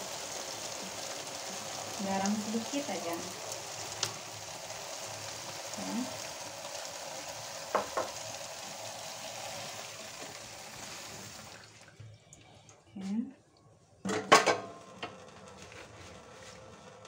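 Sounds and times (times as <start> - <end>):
oil sizzling in frying pan: 0.0 - 11.9.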